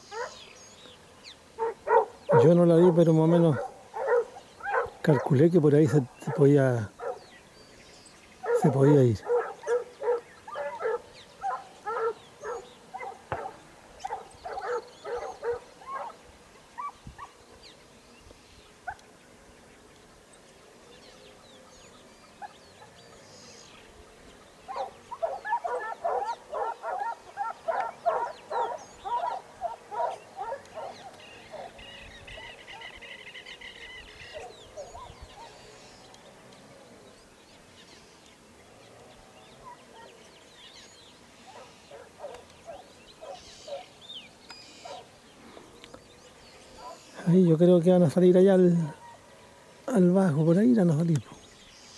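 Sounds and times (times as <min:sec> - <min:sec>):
hounds baying: 0:00.1 - 0:00.4, 0:01.6 - 0:07.3, 0:08.4 - 0:17.4, 0:24.6 - 0:33.0, 0:34.2 - 0:35.7, 0:41.5 - 0:44.0, 0:44.8 - 0:45.1, 0:46.7 - 0:47.2, 0:48.8 - 0:49.3.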